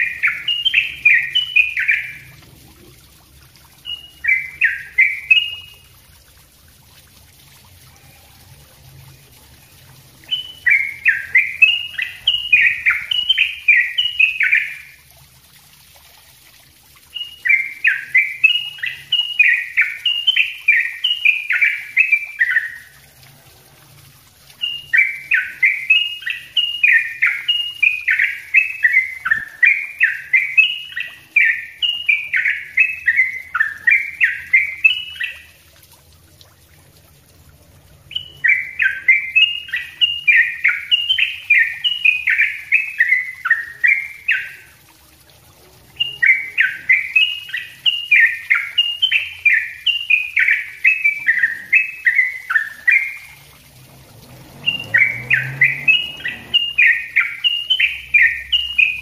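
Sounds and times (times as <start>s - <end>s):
bird chattering song: 0.0s - 2.4s, 3.8s - 5.8s, 10.2s - 15.0s, 17.1s - 22.9s, 24.6s - 35.5s, 38.1s - 44.7s, 46.0s - 53.4s, 54.6s - 59.0s.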